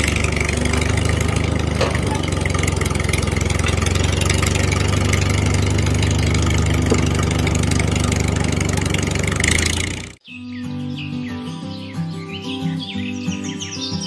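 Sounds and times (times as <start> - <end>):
tractor engine running: 0.0 - 10.2.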